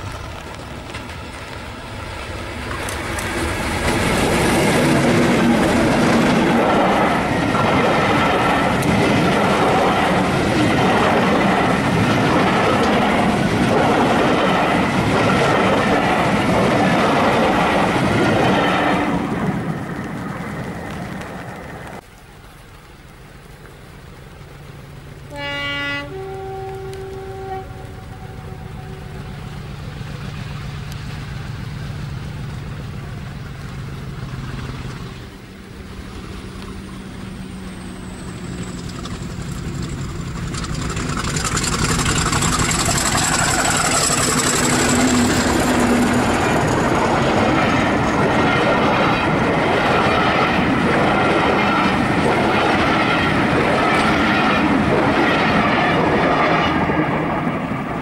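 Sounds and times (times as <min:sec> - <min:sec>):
diesel locomotive engine: 0:00.0 - 0:22.0, 0:23.1 - 0:58.0
train coaches rumbling: 0:00.0 - 0:22.0, 0:24.5 - 0:58.0
thin high whine: 0:36.2 - 0:54.1
train wheel beats: 0:38.1 - 0:56.7.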